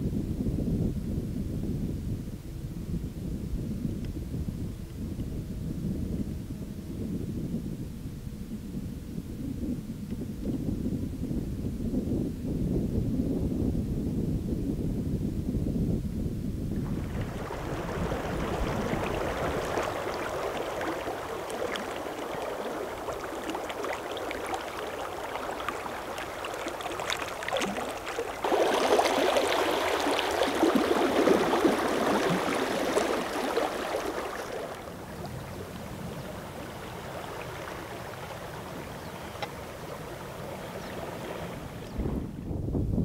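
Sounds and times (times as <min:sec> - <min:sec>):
creek water rushing: 0:16.8 - 0:41.9.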